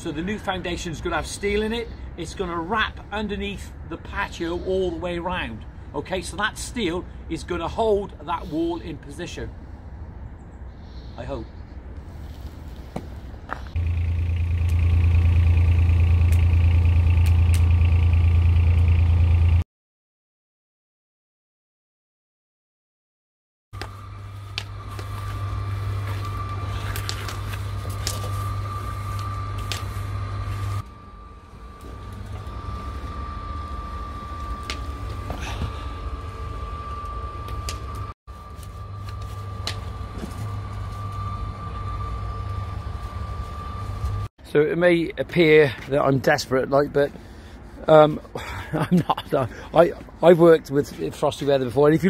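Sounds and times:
machine rumbling with high whine: 0:08.9 - 0:19.6, 0:23.8 - 0:52.0
motor humming and buzzing: 0:13.8 - 0:19.6, 0:23.8 - 0:44.3.

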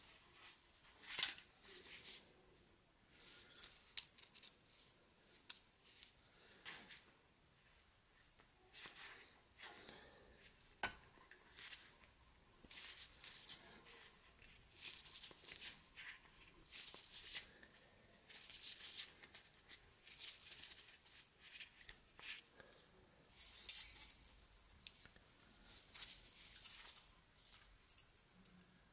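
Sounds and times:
metal tools clicking and scraping: 0:03.6 - 0:04.6, 0:23.4 - 0:25.0.

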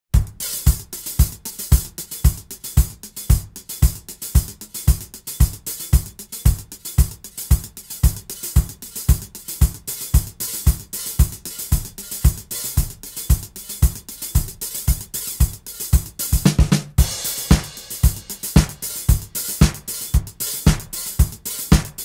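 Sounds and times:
kick drum beat: 0:00.1 - 0:22.0
hi-hats ticking: 0:00.2 - 0:22.0.

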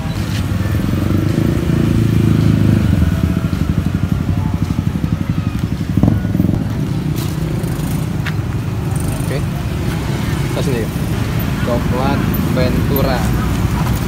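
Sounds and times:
engine pulsing rumble: 0:00.0 - 0:10.0.

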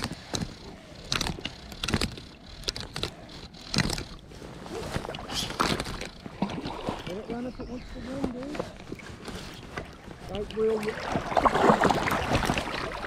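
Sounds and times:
fishing reel clicks and knocks: 0:00.0 - 0:04.2, 0:05.6 - 0:06.3
wind and water: 0:00.0 - 0:13.0.

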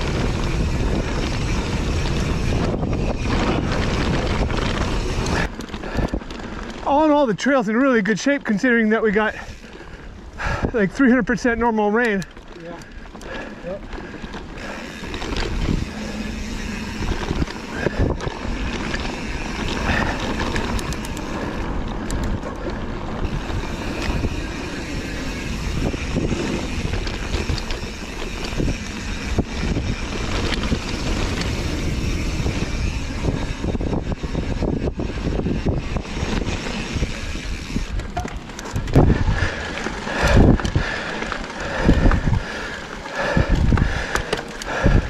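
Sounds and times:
wind rushing over microphone: 0:00.0 - 0:06.9, 0:13.9 - 0:45.0
bike rattling over bumps: 0:00.0 - 0:45.0
bike tyres on dirt: 0:00.0 - 0:45.0.

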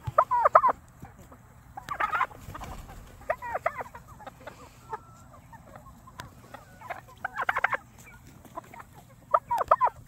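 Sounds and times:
chickens clucking: 0:00.0 - 0:10.0.

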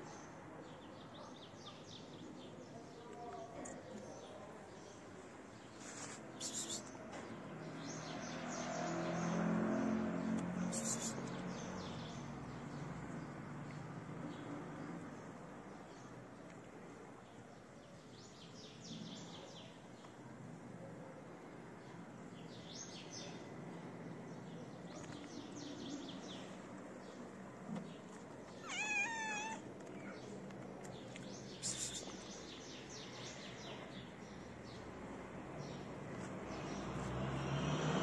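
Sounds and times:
cat meowing: 0:28.6 - 0:29.7.

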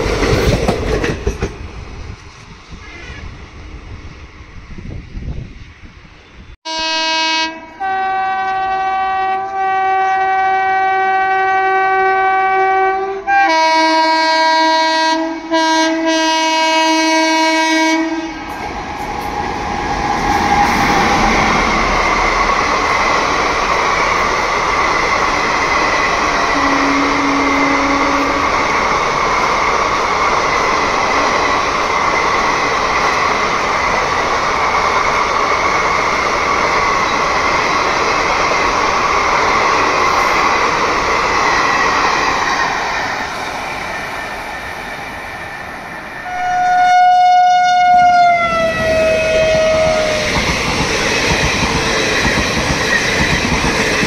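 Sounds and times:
train wheels rushing on rails: 0:00.0 - 0:06.6, 0:13.1 - 0:47.0, 0:47.8 - 0:54.0
locomotive horn blasts: 0:06.7 - 0:18.4, 0:26.5 - 0:28.5, 0:46.2 - 0:50.2.

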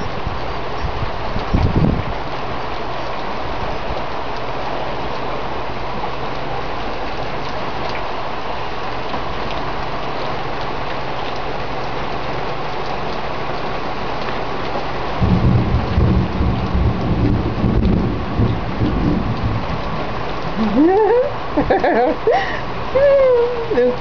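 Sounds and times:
heavy rain pouring: 0:00.0 - 0:24.0
loud low rumbling: 0:15.2 - 0:21.8.

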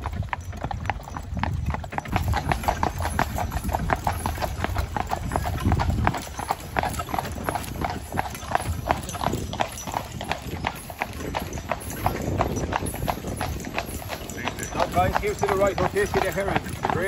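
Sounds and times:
horse hooves clip-clopping on road: 0:00.0 - 0:17.0.

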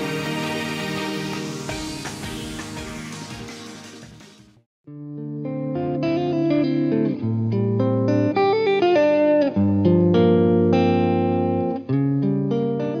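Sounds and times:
background music with held chords: 0:00.0 - 0:04.6.

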